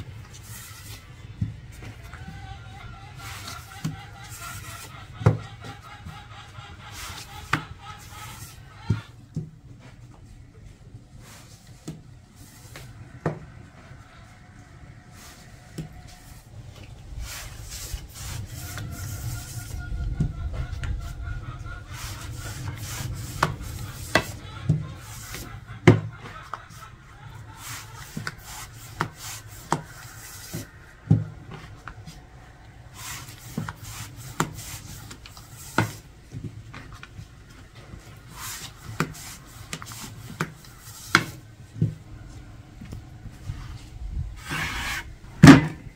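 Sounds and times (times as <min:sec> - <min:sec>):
food rubbed and scraped on wood: 0:00.2 - 0:02.5, 0:03.1 - 0:09.1, 0:17.1 - 0:30.8, 0:32.9 - 0:36.1, 0:37.7 - 0:41.5, 0:44.4 - 0:45.1.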